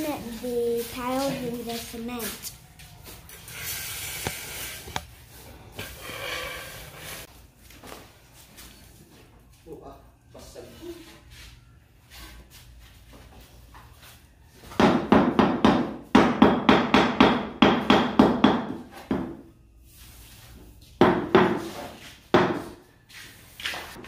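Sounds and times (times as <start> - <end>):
hammer knocking on tiles: 14.7 - 19.4, 21.0 - 21.7, 22.3 - 22.8.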